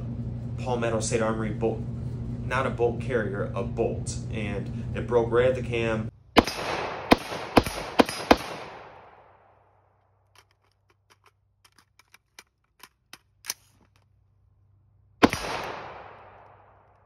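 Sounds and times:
rifle shots echoing: 6.4 - 9.6, 15.2 - 17.0.

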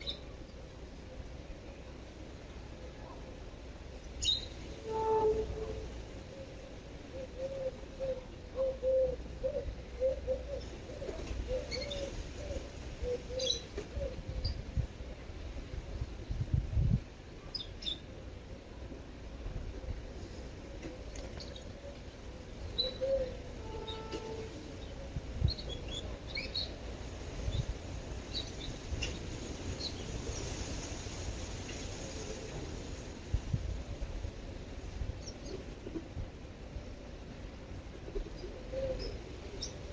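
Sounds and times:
dove cooing: 6.3 - 14.4, 22.8 - 24.4, 38.1 - 39.6.

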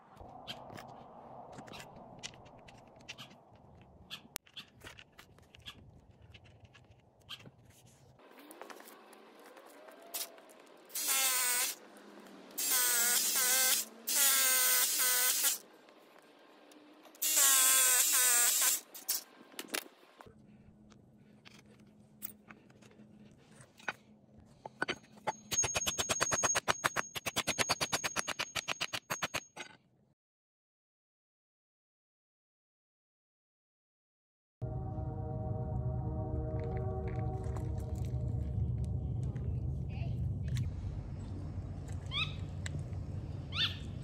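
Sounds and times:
hammer drill boring with whining motor: 10.9 - 11.8, 12.6 - 15.6, 17.2 - 18.9.

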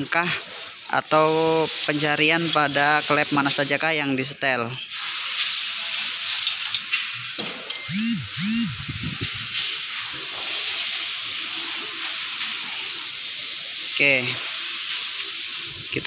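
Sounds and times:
steady hiss: 0.0 - 16.0
faint metallic clicks of tools: 6.4 - 7.9
short low rising and falling tones: 7.8 - 9.4.

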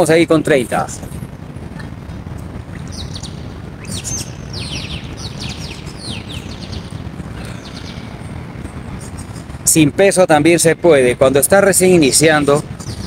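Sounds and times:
steady low rumble: 0.0 - 13.0
birds chirping: 1.7 - 13.0.

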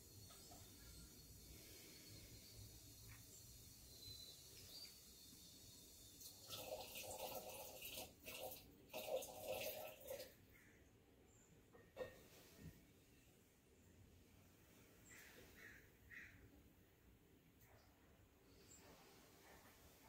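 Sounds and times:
water poured splashing and trickling: 4.5 - 10.4.

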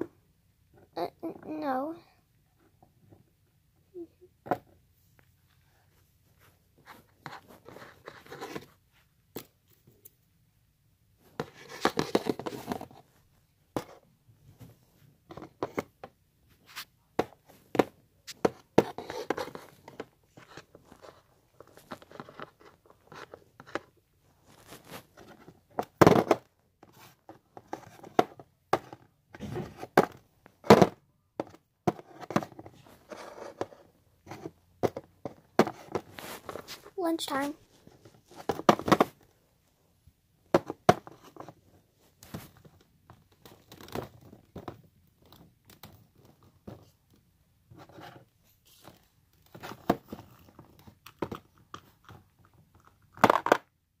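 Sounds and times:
rustling: 16.4 - 25.8, 31.9 - 39.8.

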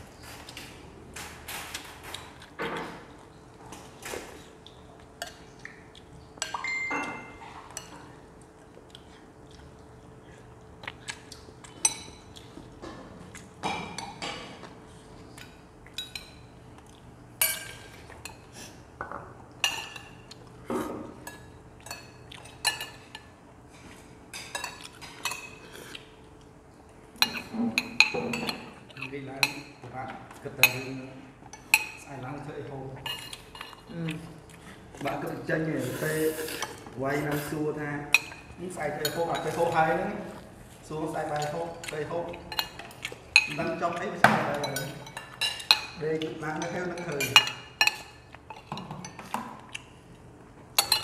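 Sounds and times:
cutlery clinking against bowls: 6.4 - 8.1, 11.2 - 13.0, 15.4 - 16.5, 17.4 - 23.3, 24.3 - 25.7, 27.2 - 32.1, 33.0 - 33.9, 38.1 - 40.1, 41.3 - 49.8, 50.7 - 51.0.

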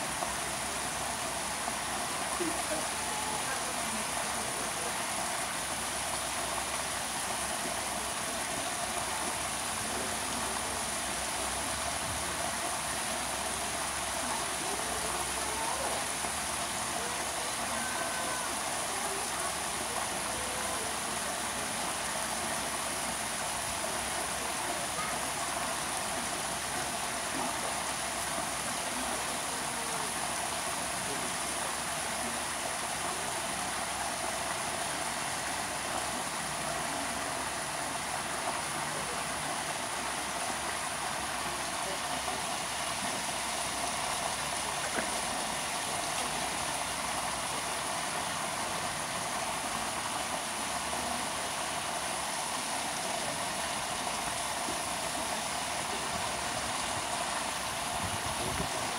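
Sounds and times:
running water rushing: 0.0 - 58.9.

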